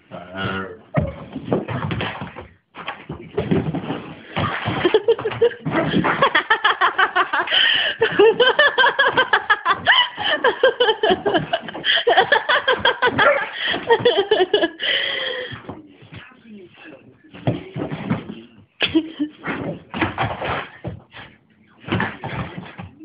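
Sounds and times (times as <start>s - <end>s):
dog landing thumps: 0.9s - 6.4s, 19.4s - 23.0s.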